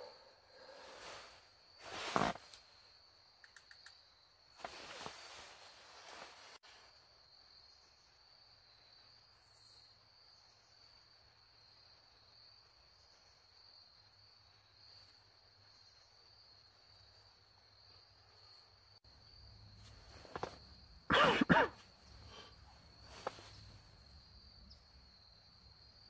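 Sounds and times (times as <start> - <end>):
high-pitched insect chorus: 0.0 - 26.0.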